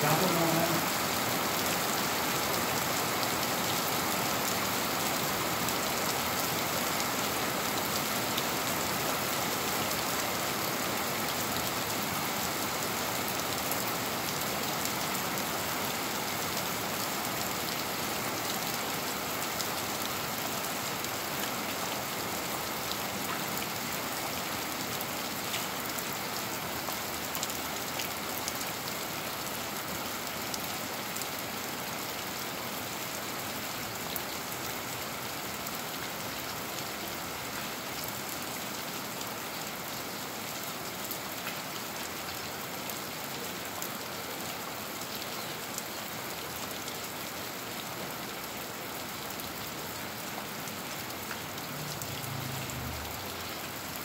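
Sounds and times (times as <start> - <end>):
rain on concrete and plants: 0.0 - 54.0
sharp raindrops close by: 0.0 - 54.0.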